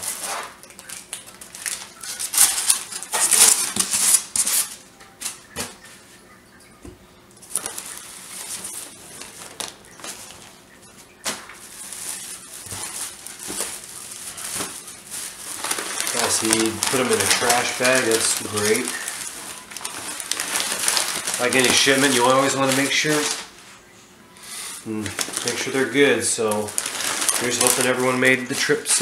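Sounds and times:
newspaper and plastic bag rustling: 0:00.0 - 0:06.2, 0:07.4 - 0:23.8, 0:24.4 - 0:29.0
foam lid scraping and squeaking: 0:11.8 - 0:23.4.

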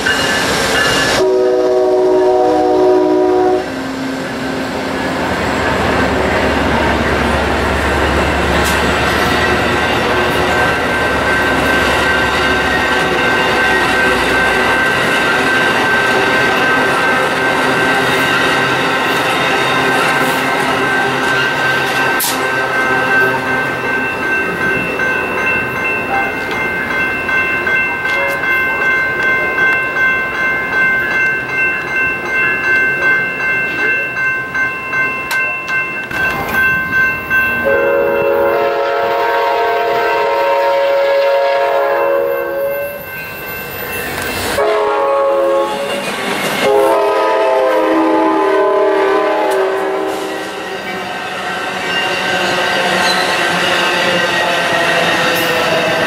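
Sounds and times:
train wheels squealing and rattling: 0:00.0 - 0:01.2, 0:04.9 - 0:27.1, 0:42.4 - 0:44.6, 0:45.7 - 0:46.9, 0:49.5 - 0:56.0
train horn blasts: 0:01.2 - 0:04.0, 0:37.6 - 0:43.0, 0:44.6 - 0:46.0, 0:46.6 - 0:50.7.

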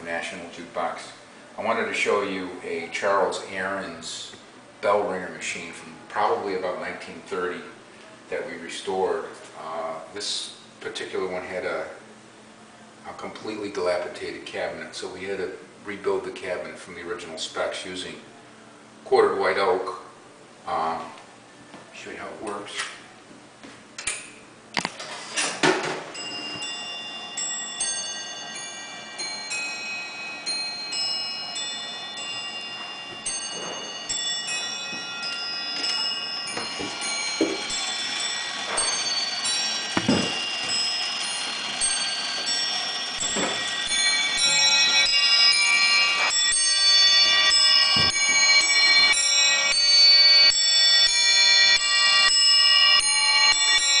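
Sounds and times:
small bells ringing: 0:26.1 - 0:54.0
dull mechanism knocks: 0:39.9 - 0:40.8.

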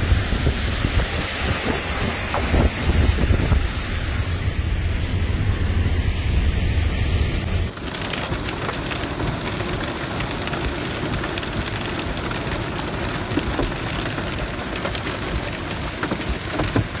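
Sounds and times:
hail and heavy rain on a car: 0:07.7 - 0:17.0.

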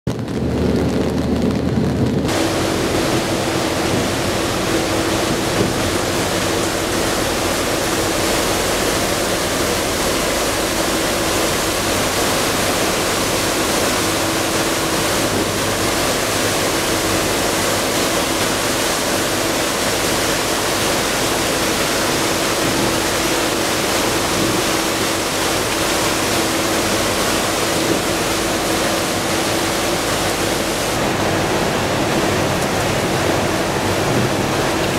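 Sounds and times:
wind rushing: 0:00.1 - 0:07.7
boat engine hum: 0:00.1 - 0:34.9
churning wake water: 0:00.1 - 0:34.9.

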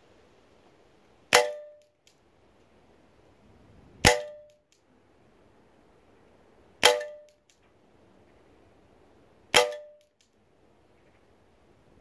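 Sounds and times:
pellet pistol shot: 0:01.3 - 0:01.8, 0:04.0 - 0:04.5, 0:06.8 - 0:07.3, 0:09.5 - 0:10.0
pellet hitting metal trap: 0:06.8 - 0:07.3, 0:09.5 - 0:10.1.

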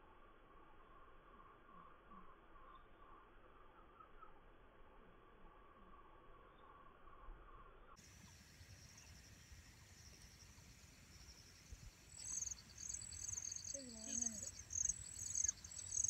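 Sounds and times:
insects chirping: 0:08.0 - 0:16.0.

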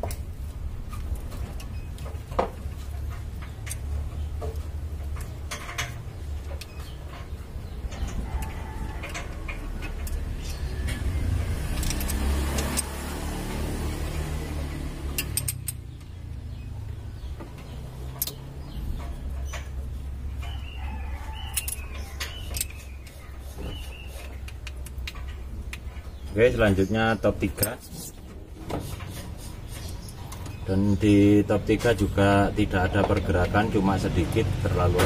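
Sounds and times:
wrench clicking on metal screws: 0:03.3 - 0:13.1, 0:15.0 - 0:16.1, 0:17.7 - 0:25.9
vehicle passing: 0:08.3 - 0:22.2.

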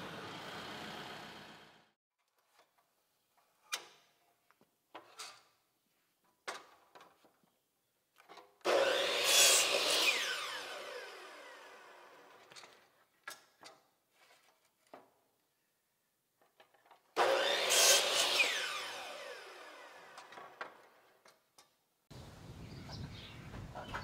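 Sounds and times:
miter saw cutting wood: 0:00.0 - 0:01.9, 0:08.7 - 0:12.8, 0:17.2 - 0:21.0
saw blade spinning down: 0:08.7 - 0:12.5, 0:17.2 - 0:20.9.

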